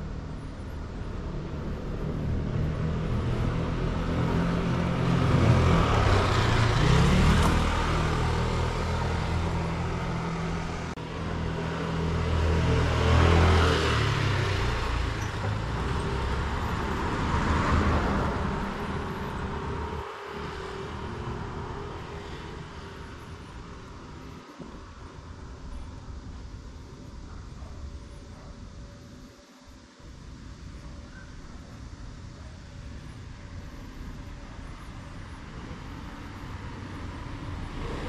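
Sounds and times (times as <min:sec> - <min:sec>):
cars driving past: 0:00.0 - 0:26.6, 0:31.8 - 0:38.0.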